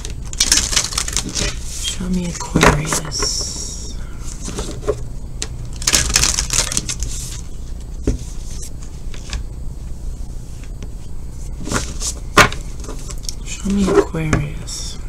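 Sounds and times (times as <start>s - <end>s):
cards being shuffled: 0.0s - 1.9s.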